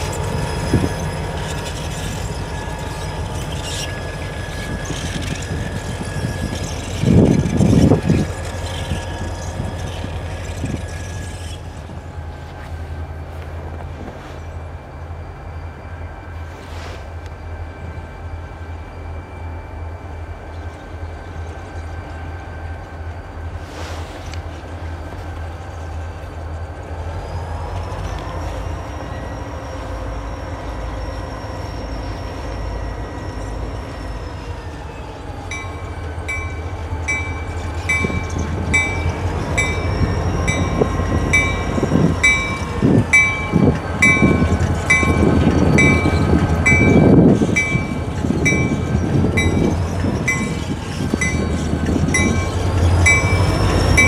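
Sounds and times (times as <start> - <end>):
wheels clattering over rail joints: 0.0 - 14.2, 32.6 - 54.0
locomotive bell ringing: 0.0 - 16.6, 25.1 - 54.0
diesel locomotive engine rumble: 0.0 - 54.0.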